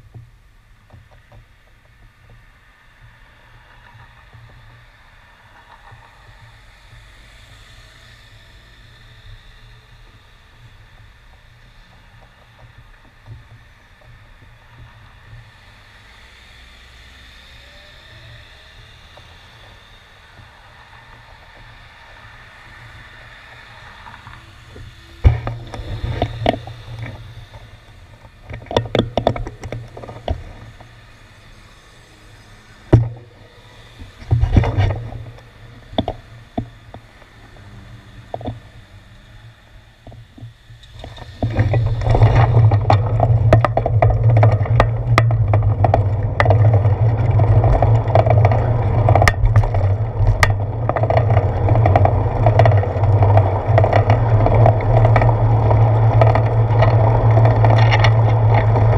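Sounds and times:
traffic hum: 0:00.0 - 0:58.9
cars passing close by: 0:02.2 - 0:58.9
microphone buffeting and bumps: 0:24.2 - 0:31.0, 0:34.0 - 0:36.8, 0:40.0 - 0:58.9.

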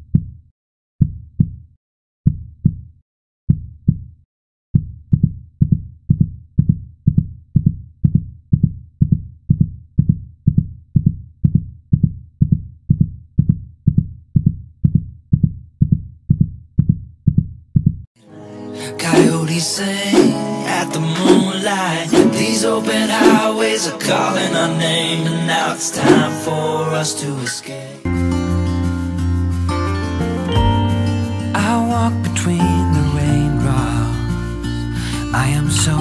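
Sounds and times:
heartbeat thumps: 0:02.3 - 0:02.9, 0:04.8 - 0:18.1.

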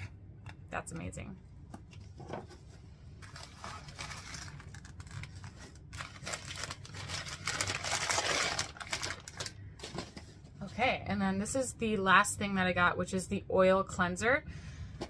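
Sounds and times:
paper wrapping rustling: 0:01.9 - 0:10.5.

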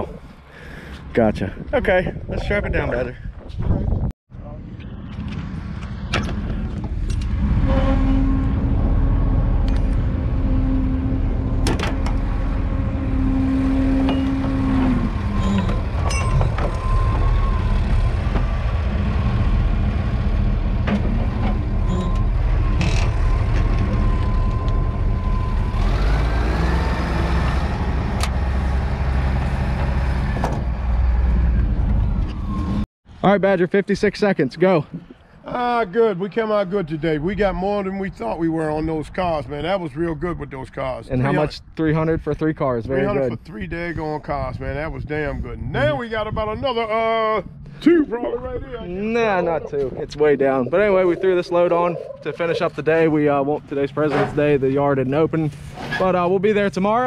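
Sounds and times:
diesel engine revving: 0:05.0 - 0:32.8
sharp metal clanks: 0:15.5 - 0:16.8.

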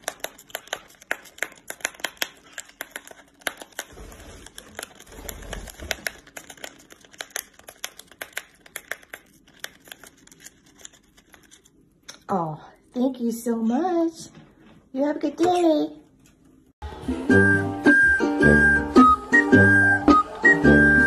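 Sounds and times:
parrot tearing paper packet: 0:00.0 - 0:11.8.

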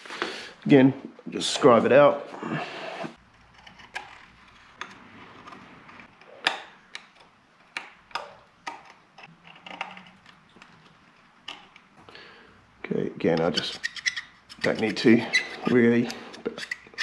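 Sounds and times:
scriber scratching metal: 0:13.3 - 0:17.0.

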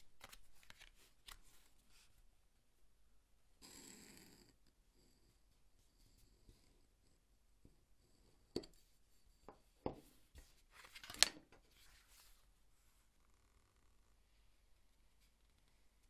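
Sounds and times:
paper rustle: 0:00.0 - 0:01.9, 0:10.4 - 0:12.4.

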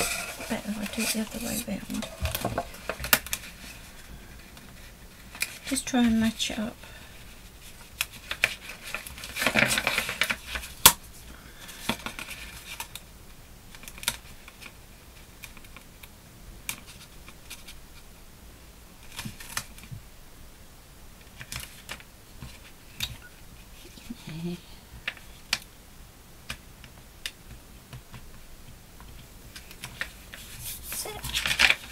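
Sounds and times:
paper rustling: 0:00.0 - 0:06.3, 0:07.6 - 0:10.8, 0:29.6 - 0:31.9.

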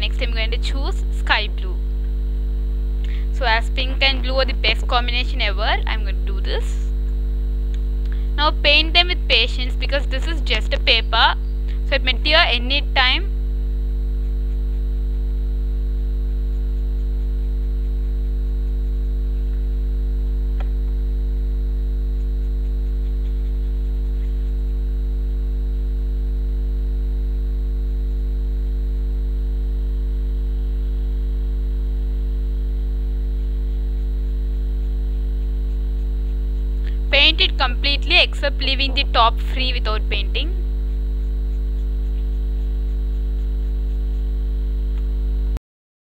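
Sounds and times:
electrical mains hum: 0:00.0 - 0:45.6
faint click: 0:44.9 - 0:45.1.

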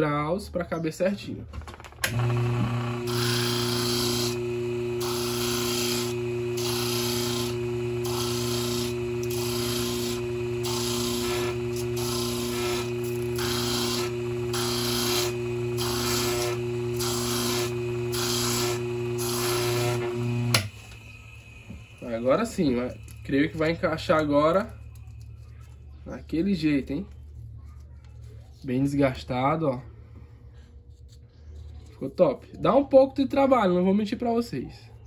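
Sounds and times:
motor humming: 0:02.0 - 0:25.2
sander rasping on part: 0:02.1 - 0:24.2.

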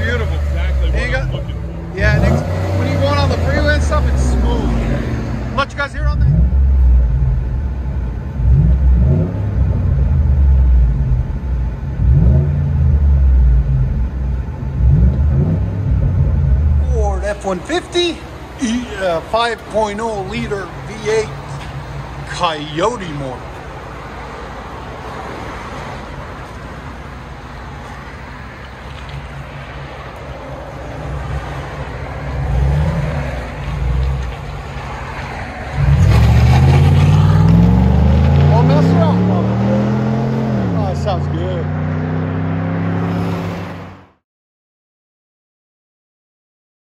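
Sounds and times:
engine revving: 0:00.0 - 0:19.3, 0:30.9 - 0:44.2.

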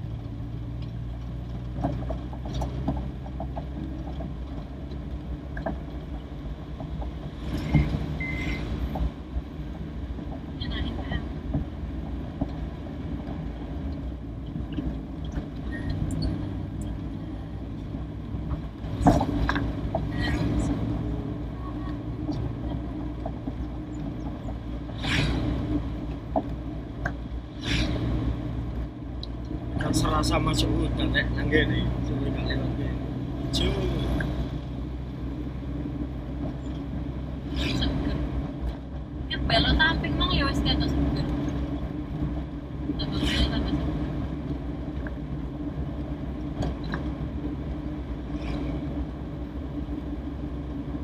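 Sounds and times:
car engine running from inside: 0:00.0 - 0:51.0
rattles and knocks: 0:00.7 - 0:08.2.

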